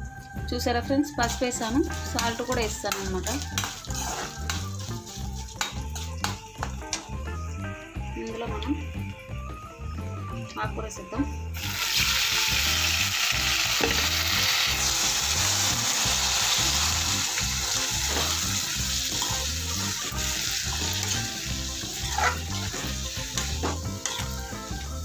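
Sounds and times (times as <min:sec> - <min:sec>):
greens sizzling in hot oil: 0:01.2 - 0:07.0, 0:11.6 - 0:25.0
spatula scraping pan: 0:01.9 - 0:06.1, 0:19.1 - 0:19.5, 0:20.9 - 0:24.4.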